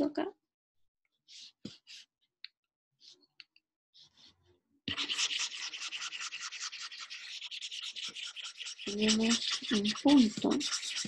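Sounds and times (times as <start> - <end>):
stylus scrubbing on drawing tablet: 1.2 - 2.3, 3.0 - 3.3, 3.9 - 11.0.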